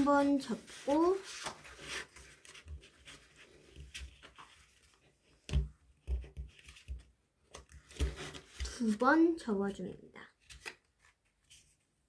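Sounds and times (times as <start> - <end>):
paper rustling and creasing: 0.0 - 5.5, 6.4 - 9.4.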